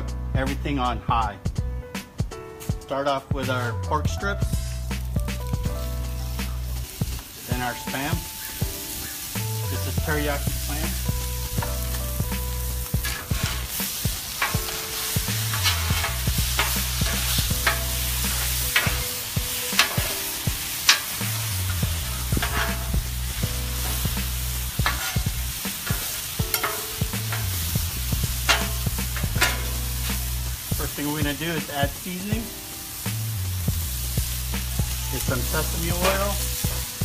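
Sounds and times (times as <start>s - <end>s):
meat sizzling on a griddle: 4.2s - 37.0s
metal spatulas scraping steel: 12.8s - 30.4s, 35.1s - 37.0s.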